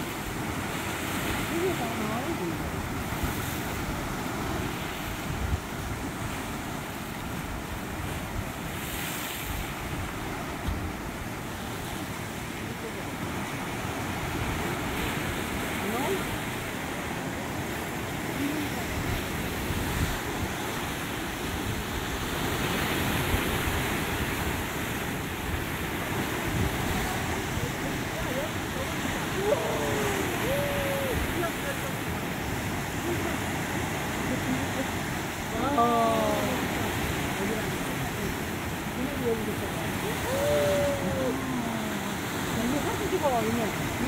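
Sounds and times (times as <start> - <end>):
wind buffeting microphone: 0.0 - 11.5
ocean surf breaking on rocks: 0.0 - 44.0.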